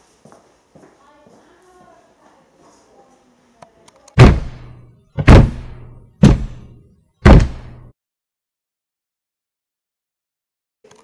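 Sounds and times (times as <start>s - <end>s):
heavy booming hits: 4.2s - 7.9s.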